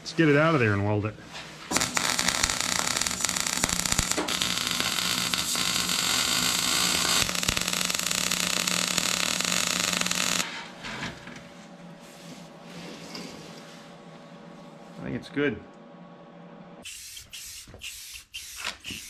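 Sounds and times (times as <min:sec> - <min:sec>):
welder arc crackling: 0:01.7 - 0:10.4.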